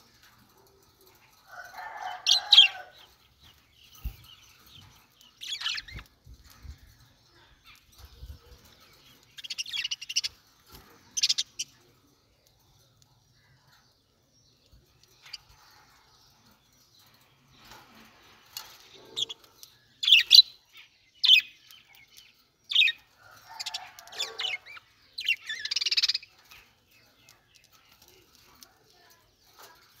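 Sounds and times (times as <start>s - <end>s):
budgerigars chirping and squawking: 3.8s - 6.1s, 18.6s - 28.1s.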